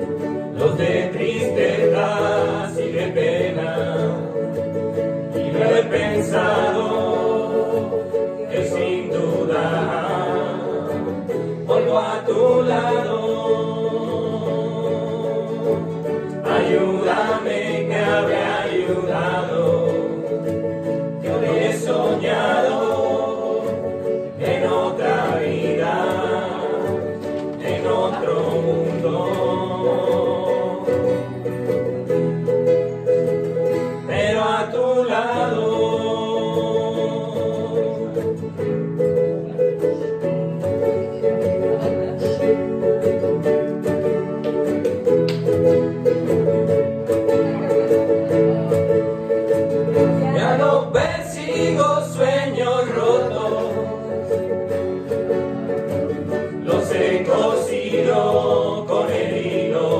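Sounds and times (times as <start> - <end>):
people singing a pop song: 0.0 - 31.9, 33.7 - 38.8, 50.0 - 59.9
acoustic guitar: 0.0 - 59.9
ukuleles: 0.0 - 59.9.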